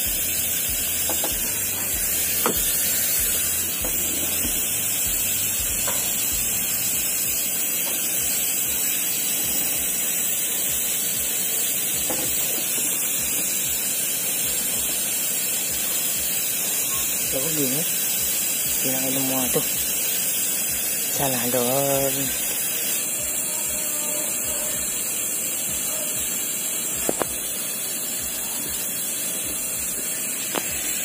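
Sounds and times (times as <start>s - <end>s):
steady hiss: 0.0s - 31.0s.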